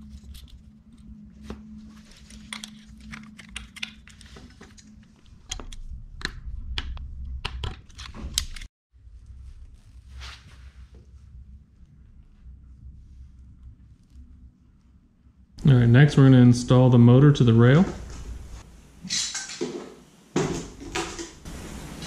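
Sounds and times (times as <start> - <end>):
faint steady hum: 9.0 - 22.0.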